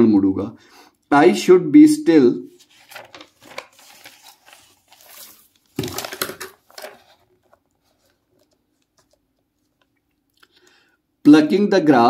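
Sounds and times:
crinkling and rustling handling: 0:02.5 - 0:10.4.

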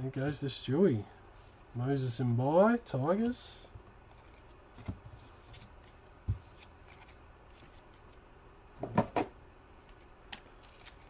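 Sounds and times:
cards rustling: 0:04.1 - 0:08.2, 0:09.8 - 0:11.0.

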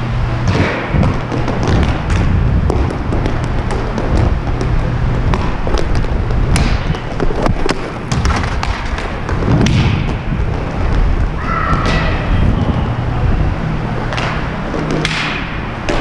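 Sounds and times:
skate wheels rumbling on rink floor: 0:00.0 - 0:16.0
hockey sticks and puck clacking: 0:00.5 - 0:11.1, 0:14.1 - 0:16.0.

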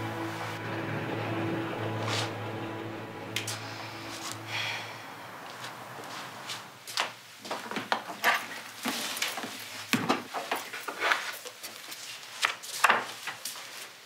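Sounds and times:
footsteps: 0:01.8 - 0:13.9
handling of things: 0:06.5 - 0:14.0.

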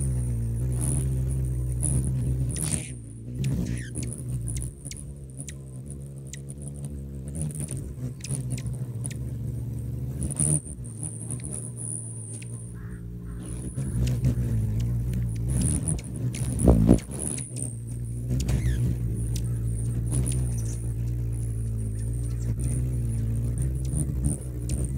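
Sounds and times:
hummingbird wings humming: 0:00.0 - 0:24.9.

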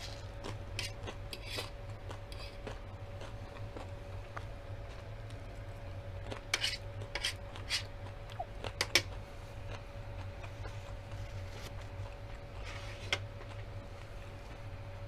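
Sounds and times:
crunchy chewing: 0:00.0 - 0:15.0
faint steady hum: 0:00.0 - 0:15.0.

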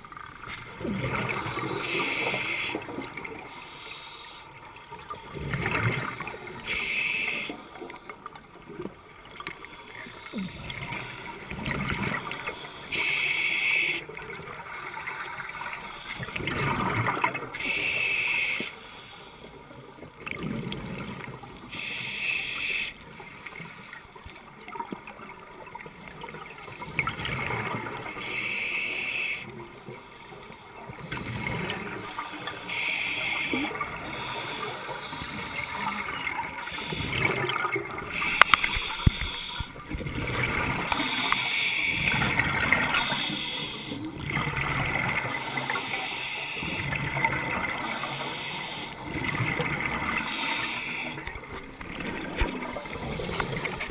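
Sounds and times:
regulator hiss on inhale: 0:01.4 - 0:04.7, 0:06.6 - 0:08.0, 0:12.2 - 0:14.0, 0:17.5 - 0:19.8, 0:21.6 - 0:24.0, 0:28.1 - 0:29.5, 0:32.1 - 0:35.9, 0:36.6 - 0:39.8, 0:40.9 - 0:44.1, 0:45.3 - 0:46.8, 0:47.8 - 0:49.0, 0:50.2 - 0:51.3, 0:52.6 - 0:53.8.

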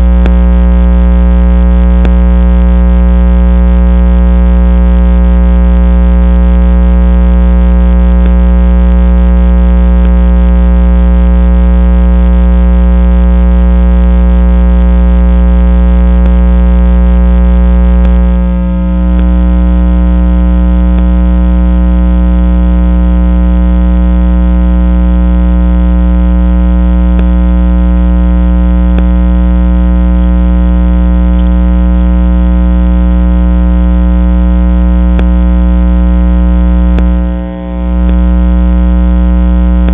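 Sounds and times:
steady electronic drone: 0:00.0 - 0:21.6, 0:33.6 - 0:39.9
strong low hum: 0:00.0 - 0:39.9.

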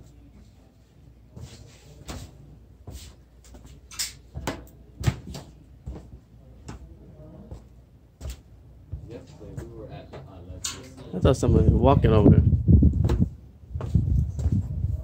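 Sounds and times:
footsteps on wooden planks: 0:02.2 - 0:06.9, 0:13.0 - 0:14.7.

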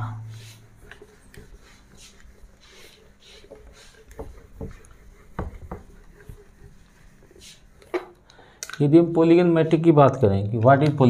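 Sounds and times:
eraser rubbing whiteboard: 0:00.3 - 0:08.0
eraser knocking against board: 0:03.5 - 0:06.0.

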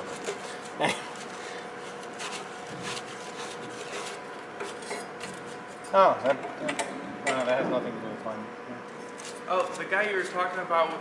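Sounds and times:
brush scrubbing metal: 0:00.0 - 0:05.6
steady background hum: 0:00.0 - 0:11.0.

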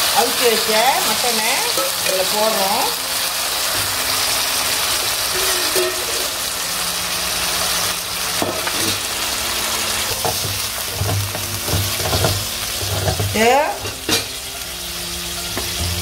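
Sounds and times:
meat sizzling in hot oil: 0:00.0 - 0:16.0
wooden spatula scraping wok: 0:10.1 - 0:14.3.

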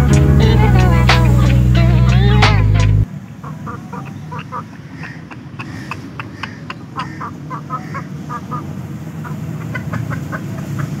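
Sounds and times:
steady low rumble: 0:00.0 - 0:03.1
chick peeping: 0:03.4 - 0:11.0.

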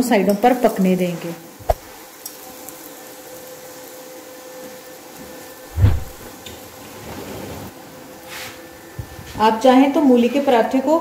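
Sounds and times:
flatbread sizzling on a hot pan: 0:00.0 - 0:09.1
dull low thump: 0:05.7 - 0:06.2.

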